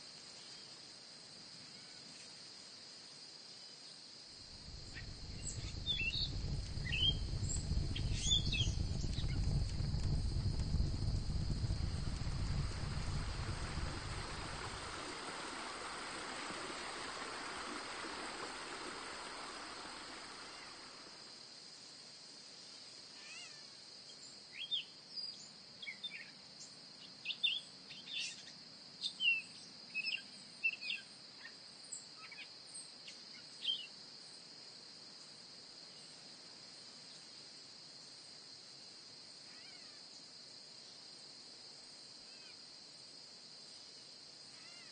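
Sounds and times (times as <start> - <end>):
high insect trill: 0.0 - 44.9
soft rushing noise: 4.5 - 21.3
short bird chirps: 4.9 - 7.3.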